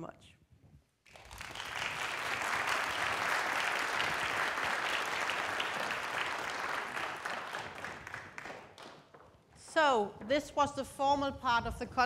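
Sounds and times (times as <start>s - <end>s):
audience applauding: 1.1s - 9.4s.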